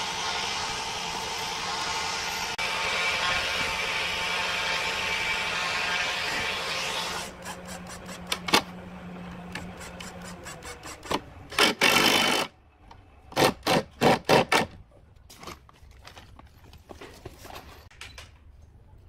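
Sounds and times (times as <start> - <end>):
power driver driving screw into wood: 9.5 - 12.5.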